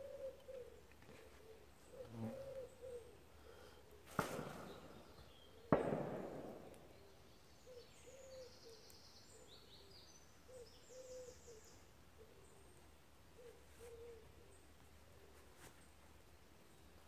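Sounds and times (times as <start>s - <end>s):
bird cooing: 0.0s - 5.8s, 6.8s - 12.8s, 13.4s - 14.6s
small birds chirping: 0.0s - 17.0s
distant gunshots echoing: 4.1s - 7.2s.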